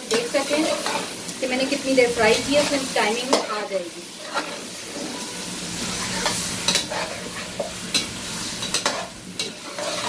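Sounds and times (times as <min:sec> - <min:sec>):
chicken sizzling in hot oil: 0:00.0 - 0:10.0
metal spatula scraping pot: 0:02.6 - 0:10.0.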